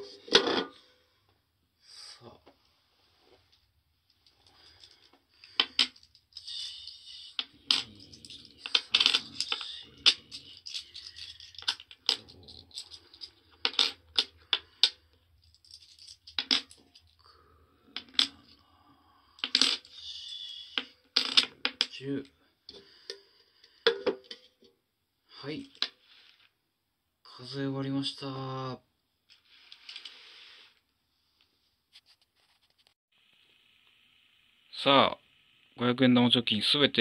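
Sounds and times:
coins set down on wooden table: 0:15.5 - 0:17.1.

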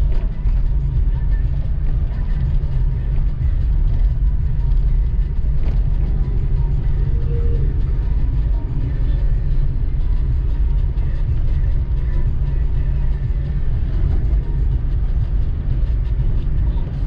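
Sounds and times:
car driving on paved road: 0:00.0 - 0:17.0.

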